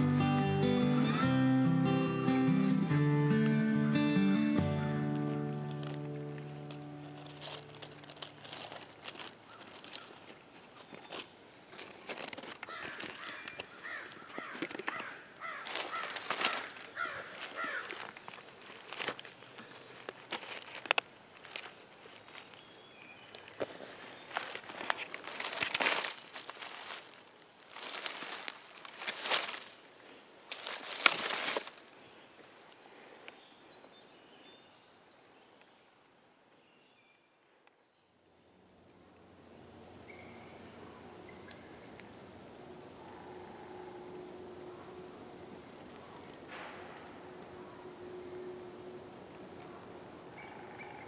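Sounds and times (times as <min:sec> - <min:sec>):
dry leaves crackling and rustling: 0:04.6 - 0:32.0, 0:39.6 - 0:51.0
crows cawing: 0:12.6 - 0:18.2, 0:43.0 - 0:45.2, 0:45.9 - 0:51.0
faint high bird calls: 0:42.8 - 0:51.0.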